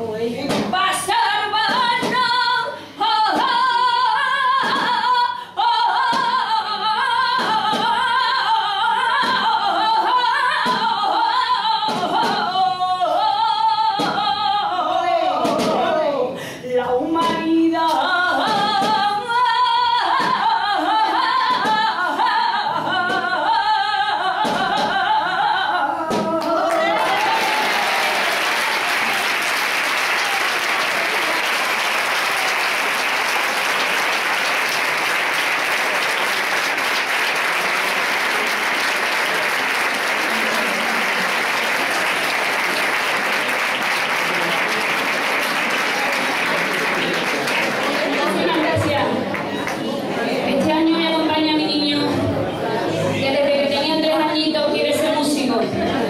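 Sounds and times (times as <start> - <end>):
woman singing: 0.0 - 27.4
audience applause: 26.6 - 49.9.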